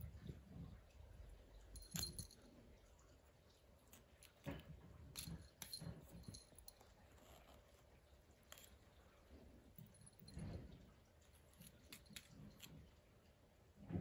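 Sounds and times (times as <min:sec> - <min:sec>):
small collar bell jingling: 0:01.8 - 0:02.4.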